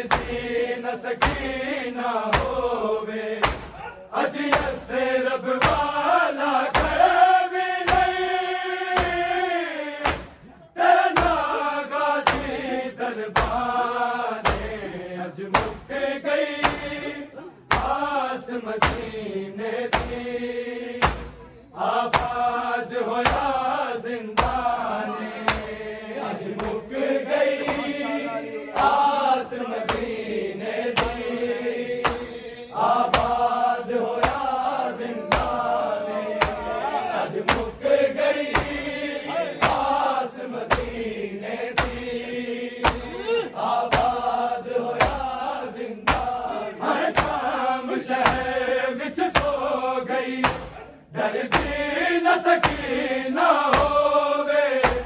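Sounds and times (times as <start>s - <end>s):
hands slapping on chests: 0.0s - 1.6s, 2.2s - 4.9s, 5.5s - 6.0s, 6.6s - 7.2s, 7.8s - 9.4s, 10.0s - 11.5s, 12.2s - 12.7s, 13.3s - 13.8s, 14.4s - 14.9s, 15.5s - 15.9s, 16.5s - 17.0s, 17.7s - 19.2s, 19.9s - 20.3s, 21.0s - 23.7s, 24.4s - 25.8s, 26.4s - 28.0s, 28.7s - 41.1s, 41.7s - 43.1s, 43.9s - 47.5s, 48.2s - 48.6s, 49.3s - 49.7s, 50.4s - 51.9s, 52.5s - 54.1s, 54.7s - 55.0s
men chanting in unison: 0.0s - 55.0s.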